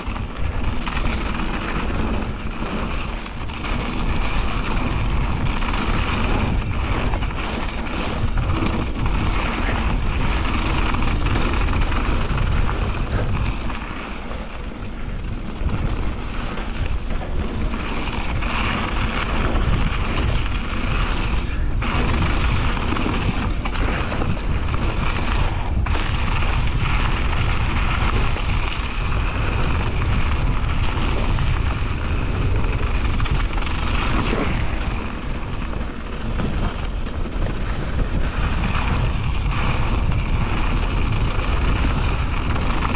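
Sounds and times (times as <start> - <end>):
bike knocks and rattles: 0.0 - 42.9
tyres rolling on dirt: 0.0 - 42.9
wind rushing over microphone: 0.0 - 42.9.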